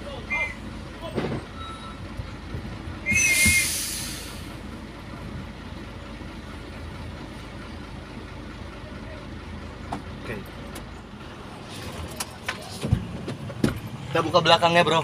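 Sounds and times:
diesel engine idling: 0.0 - 15.0
brief squeal: 1.5 - 2.0, 3.1 - 4.4
air brake hissing: 3.1 - 4.6.

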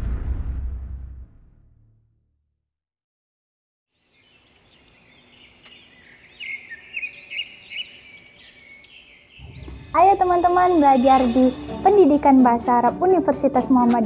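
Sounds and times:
small birds chirping: 3.9 - 14.0.

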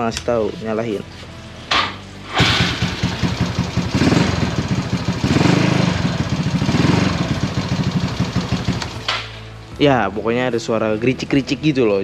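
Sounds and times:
scooter engine rattling: 2.4 - 9.1.

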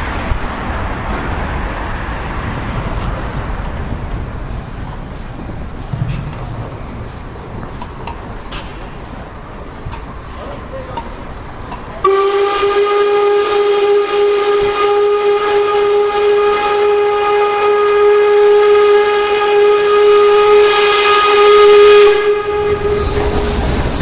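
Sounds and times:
locomotive rumble on rails: 0.0 - 24.0
steam hiss: 0.0 - 24.0
steam whistle blast: 12.0 - 24.0.

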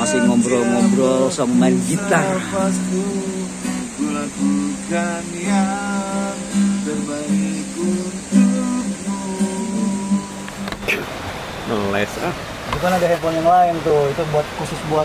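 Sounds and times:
man singing: 0.0 - 10.6
acoustic guitar strummed: 0.0 - 11.2.

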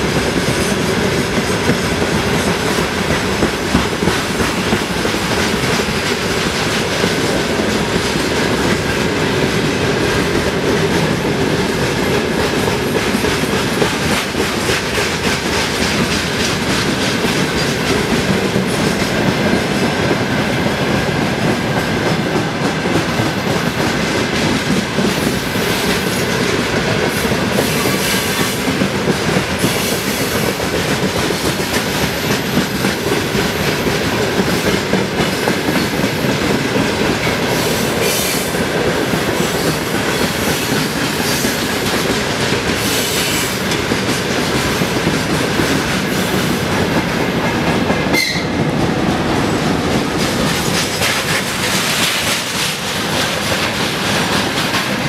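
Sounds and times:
train wheels clattering over rail joints: 0.0 - 55.0.

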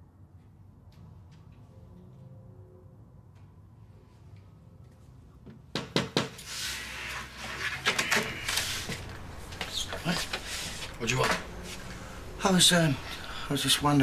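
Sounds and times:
knocks on door: 5.7 - 6.3
door opening: 7.4 - 11.6.

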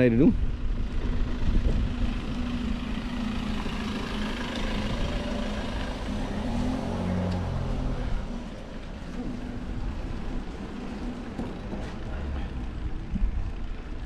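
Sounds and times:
steady low rumble: 0.0 - 5.9
motorhome engine passing by: 0.0 - 14.0.

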